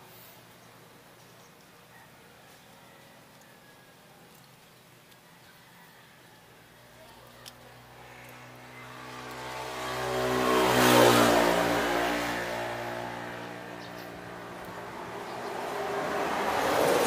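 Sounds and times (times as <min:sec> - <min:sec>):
vehicle engine passing by: 0:07.5 - 0:17.0.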